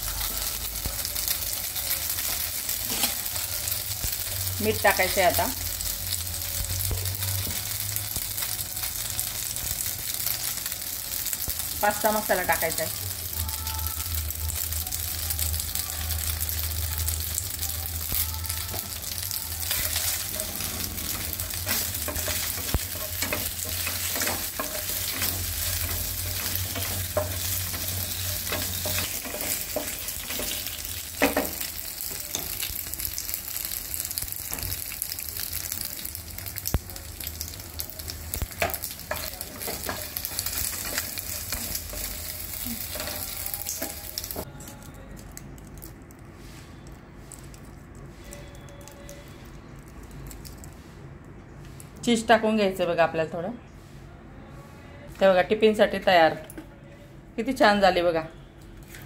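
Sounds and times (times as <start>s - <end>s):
food sizzling in a frying pan: 0.0s - 44.5s.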